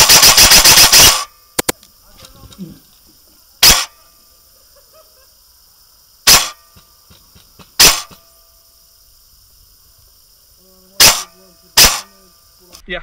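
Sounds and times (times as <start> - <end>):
airsoft gun shots: 0.0 - 1.8, 3.6 - 4.0, 6.2 - 6.9, 7.6 - 8.3, 11.0 - 12.2.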